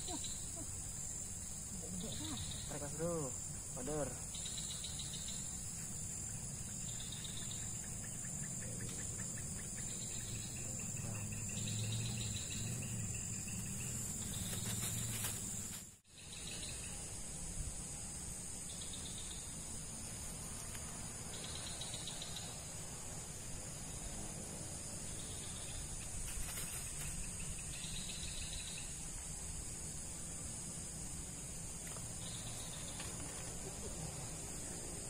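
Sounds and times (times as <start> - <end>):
insects shrilling: 0.0 - 17.6
short higher insect calls: 0.0 - 35.0.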